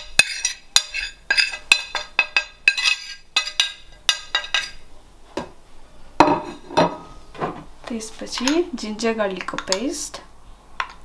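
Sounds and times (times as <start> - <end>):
plate clinking on ceramic bowl: 6.2 - 7.0.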